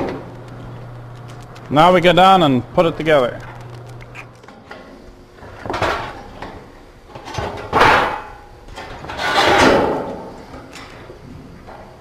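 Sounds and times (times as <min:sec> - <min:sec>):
sheet metal sliding: 0:08.9 - 0:10.4.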